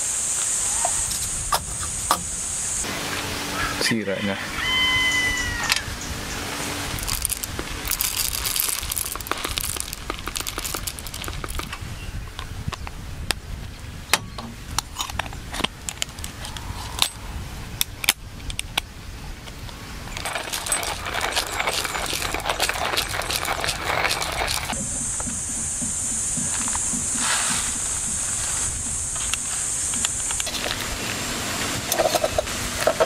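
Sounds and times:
hissing rushing noise: 20.0 - 33.0.

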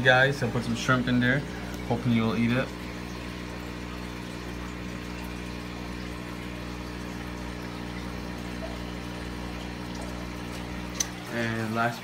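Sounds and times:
moving water: 0.0 - 12.0
water pump humming: 0.0 - 12.0.

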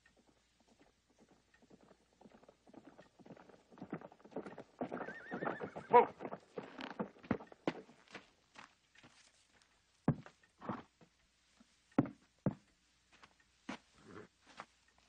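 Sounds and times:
horse hooves clopping: 0.0 - 15.0
horse whinnying: 4.9 - 6.2.

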